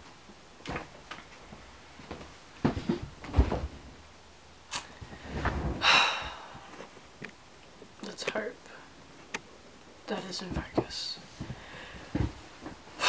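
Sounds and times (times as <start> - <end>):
knocks and thumps: 2.6 - 3.9, 10.6 - 12.8.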